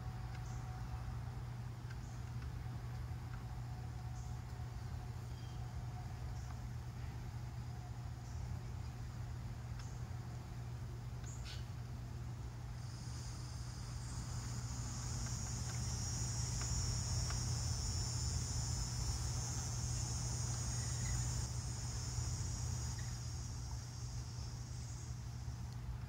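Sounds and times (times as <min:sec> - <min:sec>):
low steady hum: 0:00.0 - 0:26.0
high insect buzz: 0:12.6 - 0:25.8.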